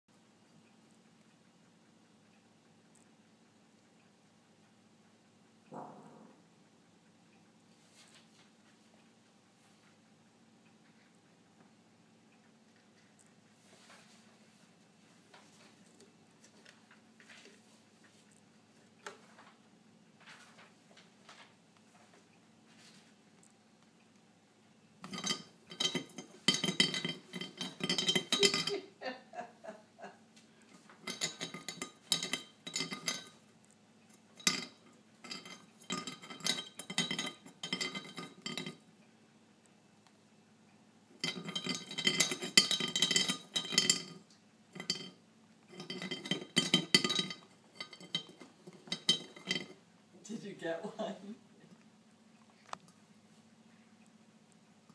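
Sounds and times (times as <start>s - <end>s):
ceramic lid rattling in teapot: 25.0s - 28.8s, 31.0s - 33.4s, 34.4s - 38.8s, 41.2s - 44.2s, 44.8s - 49.8s.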